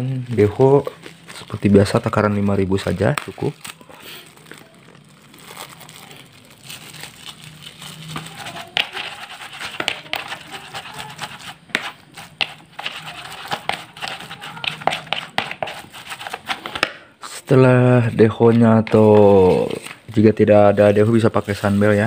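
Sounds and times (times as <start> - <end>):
plastic bag crinkling: 0.0 - 17.1, 17.9 - 22.0
paddle scraping plastic bowl: 8.5 - 16.9.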